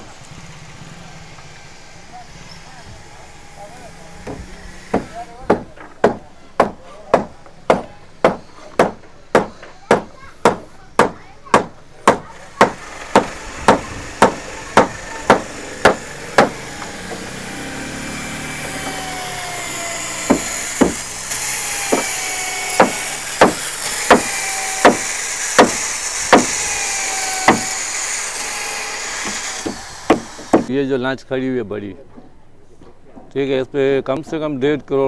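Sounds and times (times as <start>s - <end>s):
electric drill boring into wood: 12.8s - 30.7s
hammer blows on wood: 20.2s - 21.0s.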